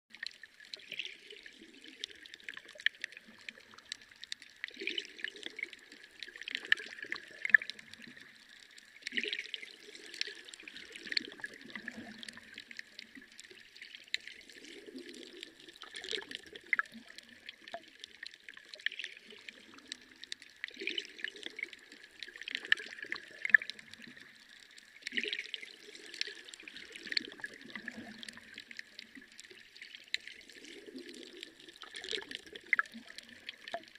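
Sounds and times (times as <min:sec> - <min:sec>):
water trickling and splashing: 0:00.1 - 0:33.9
small splashes and gurgles: 0:00.2 - 0:33.9.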